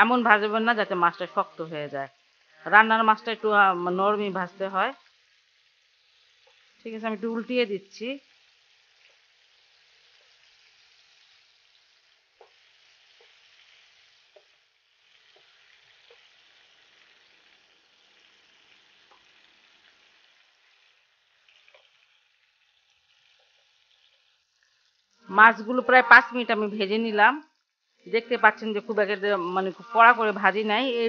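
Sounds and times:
fish frying in oil: 0.0s - 31.0s.

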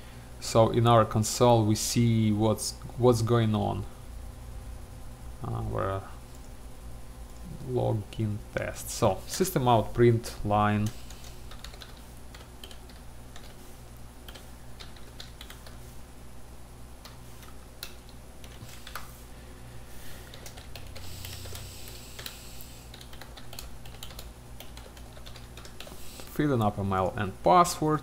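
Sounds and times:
steady low hum: 0.0s - 28.0s
typing on computer keyboard: 10.9s - 13.6s, 14.2s - 15.8s, 20.3s - 26.0s.

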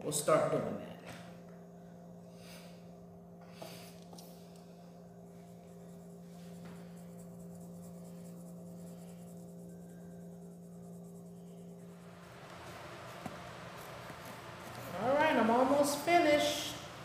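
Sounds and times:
steady low hum: 0.0s - 17.0s
pencil scratching on paper: 5.7s - 12.1s.

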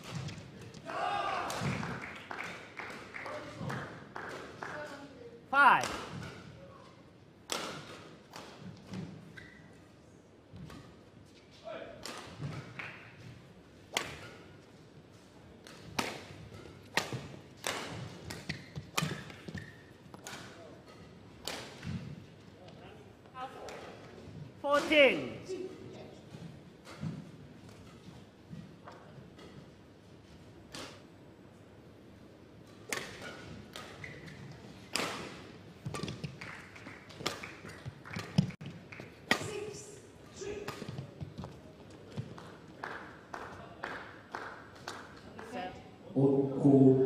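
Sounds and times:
racket hitting shuttlecock: 7.5s - 9.2s, 13.9s - 14.6s, 15.6s - 22.2s, 32.7s - 36.5s, 37.1s - 38.6s, 39.2s - 39.7s.

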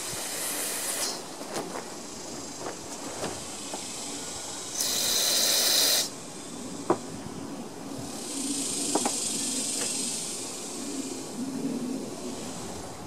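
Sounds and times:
aerosol spray hiss: 0.0s - 1.3s, 4.7s - 6.1s.

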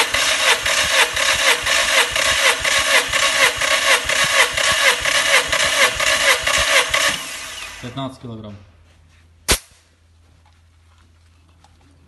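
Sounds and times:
starter motor cranking engine: 0.0s - 8.0s.

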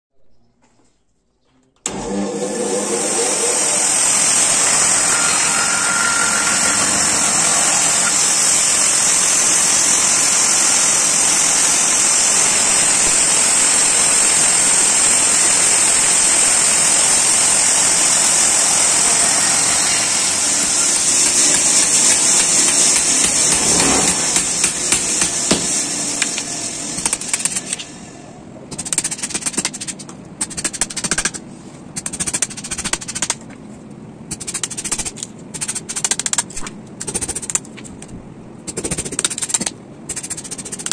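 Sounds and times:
band saw cutting wood: 1.9s - 28.2s
hatchet chopping wood: 21.2s - 25.7s.

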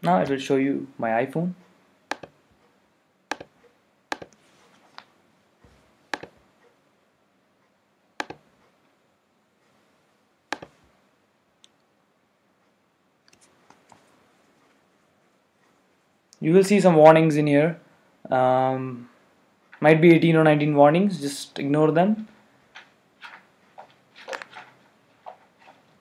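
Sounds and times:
computer mouse clicks: 2.1s - 2.4s, 3.3s - 5.1s, 6.1s - 6.4s, 8.2s - 8.5s, 10.5s - 10.8s.

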